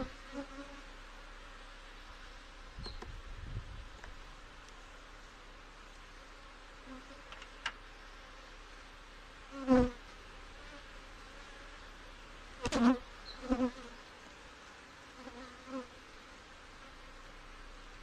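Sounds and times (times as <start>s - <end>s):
bee colony humming: 0.0s - 18.0s
bees buzzing past: 9.5s - 18.0s.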